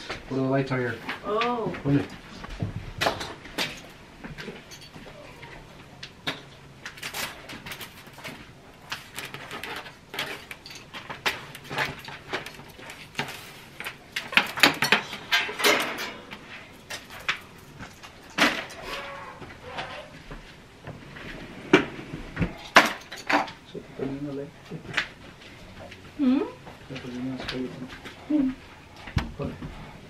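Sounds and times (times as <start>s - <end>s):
plastic string lights rattling: 6.0s - 19.1s.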